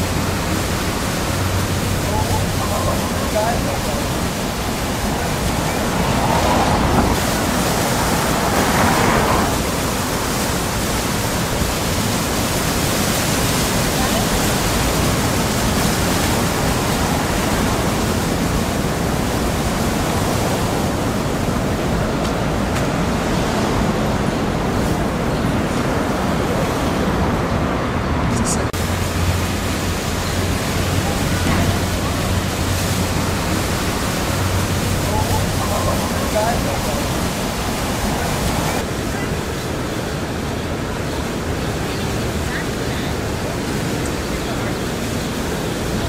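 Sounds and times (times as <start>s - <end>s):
busy city street noise: 0.0s - 46.0s
faint voices: 1.5s - 7.2s, 30.2s - 40.0s.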